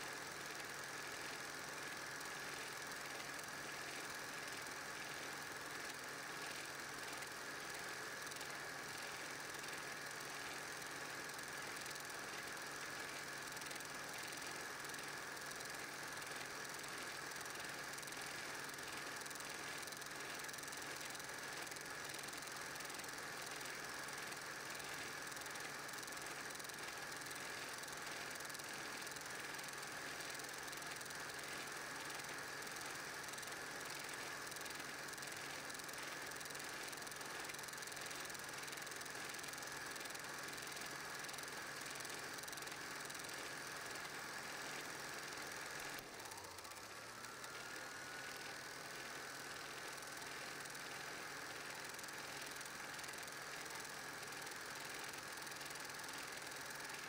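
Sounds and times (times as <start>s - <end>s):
film projector whirring: 0.0s - 57.0s.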